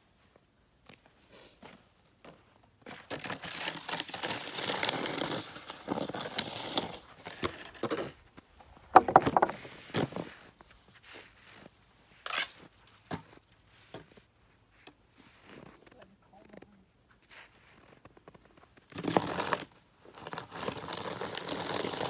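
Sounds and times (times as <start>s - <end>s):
plastic shovel scraping snow: 3.1s - 8.1s, 18.9s - 22.0s.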